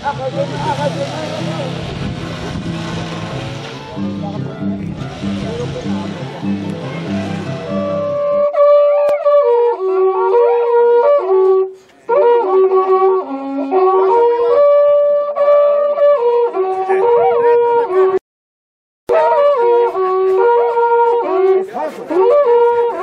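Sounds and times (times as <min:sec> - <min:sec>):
spiral horn trumpets playing melody: 0:00.0 - 0:18.2, 0:19.1 - 0:23.0.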